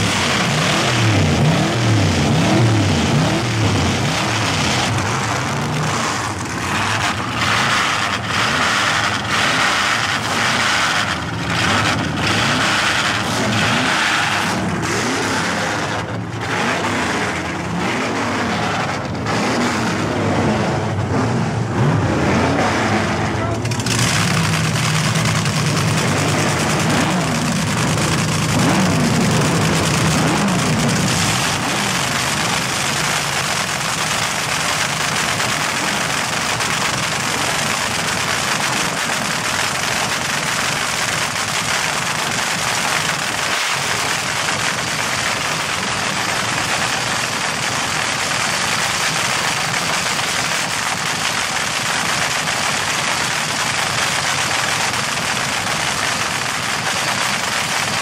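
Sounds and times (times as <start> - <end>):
dragster engine crackling idle: 0.0 - 21.8, 22.8 - 58.0.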